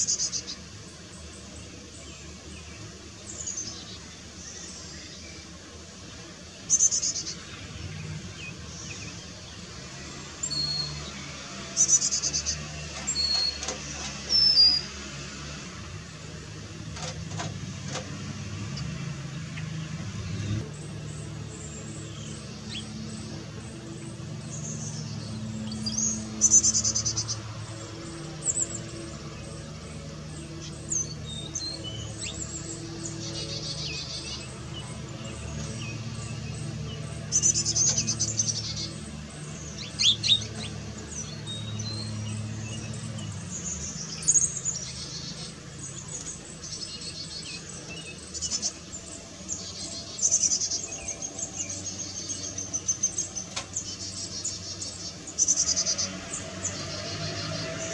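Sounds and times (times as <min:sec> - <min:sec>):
chickadees calling: 0:00.0 - 0:57.9.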